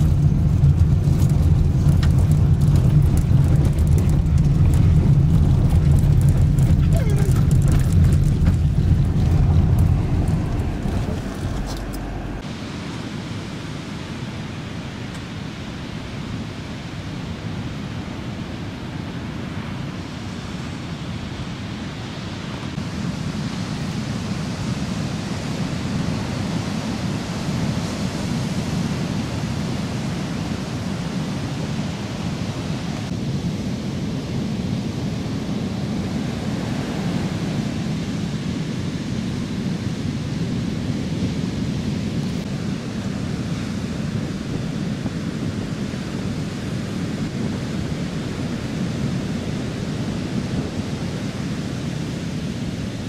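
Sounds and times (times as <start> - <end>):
vehicle low rumble: 0.0 - 12.6
surf breaking on shore: 0.0 - 33.2
wind: 0.0 - 53.0.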